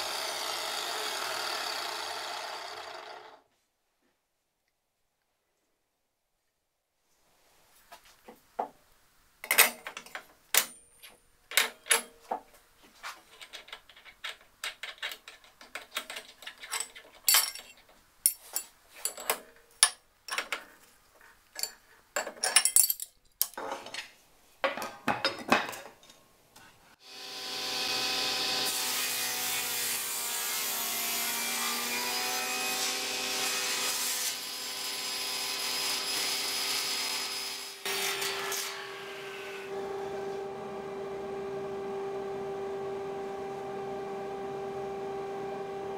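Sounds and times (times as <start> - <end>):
table saw motor running: 0.0 - 3.4, 27.1 - 29.8
metal clinks and knocks: 13.4 - 20.7, 21.6 - 24.0.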